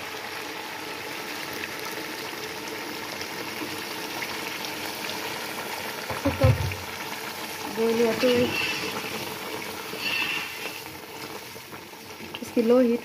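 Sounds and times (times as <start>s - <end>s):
curry boiling with bubbling hiss: 0.0s - 13.0s.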